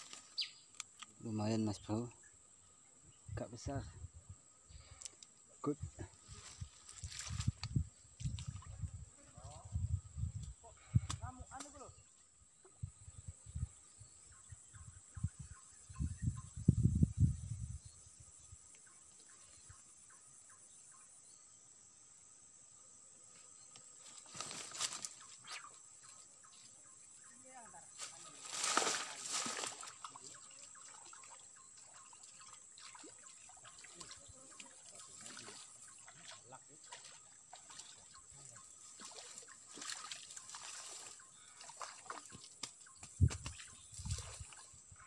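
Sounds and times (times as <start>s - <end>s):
insects droning: 0.0s - 45.0s
faint splashing on water: 28.0s - 44.7s.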